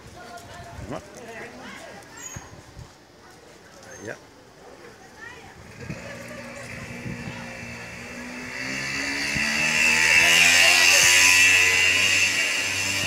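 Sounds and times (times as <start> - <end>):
motor vehicle driving past: 5.6 - 13.0.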